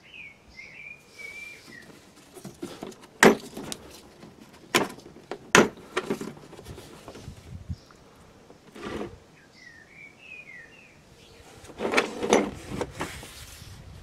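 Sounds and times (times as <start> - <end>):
bird chirping: 0.0 - 2.2, 7.1 - 11.7
tool case handling rattles: 1.7 - 7.3, 11.6 - 13.2.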